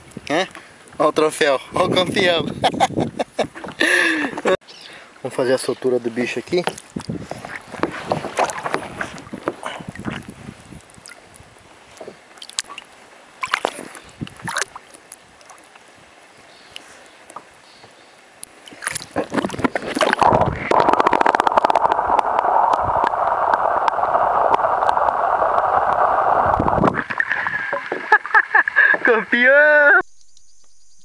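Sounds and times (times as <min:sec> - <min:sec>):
water gurgling and sloshing: 0:06.4 - 0:16.3, 0:18.3 - 0:29.1
faint underwater clicks and knocks: 0:16.7 - 0:26.0.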